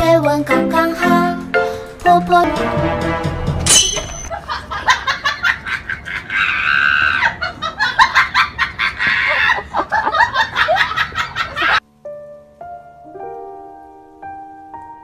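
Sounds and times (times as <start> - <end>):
person cackling laughter: 4.3 - 11.8.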